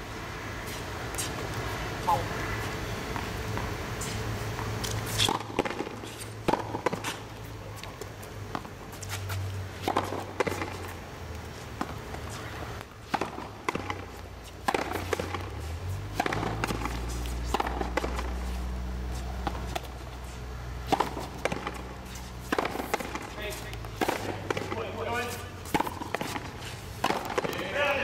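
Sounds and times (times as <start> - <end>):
rackets smacking ball: 4.6 - 8.7, 12.8 - 18.6, 20.8 - 28.0.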